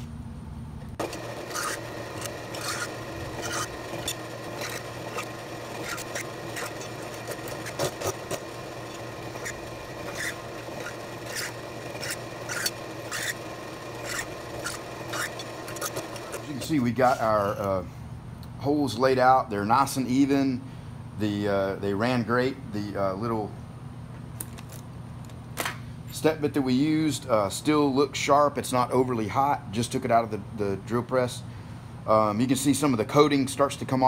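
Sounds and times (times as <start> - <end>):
machine hum: 0.0 - 18.5
sharp scrapes: 1.0 - 13.4, 14.0 - 17.3
drill bit rasping through steel: 1.0 - 17.2.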